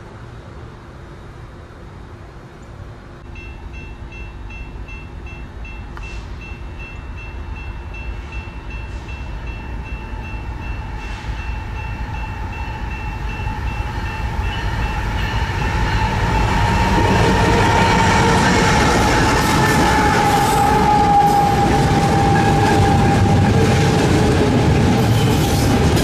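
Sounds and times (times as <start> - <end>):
freight train rumble: 0.0 - 26.0
crossing warning bell ringing: 3.2 - 26.0.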